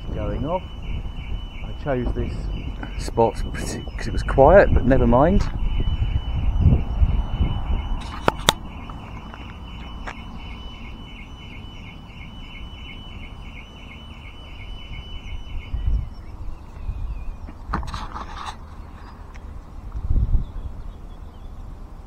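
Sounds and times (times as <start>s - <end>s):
wind rumble on microphone: 0.0s - 10.6s, 14.6s - 22.0s
car alarm pulsing tone: 0.0s - 17.6s.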